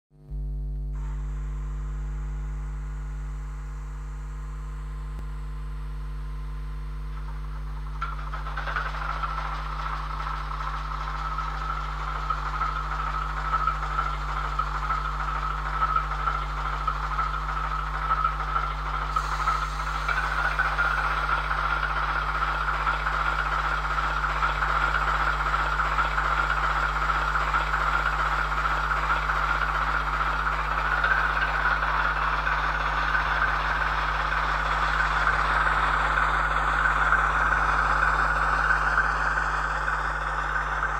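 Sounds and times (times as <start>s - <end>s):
steady hum: 0.2s - 40.9s.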